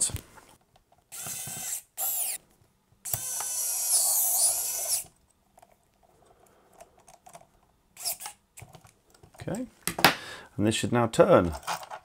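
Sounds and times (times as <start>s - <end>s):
electric screwdriver whining: 1.1s - 2.4s, 3.1s - 5.1s.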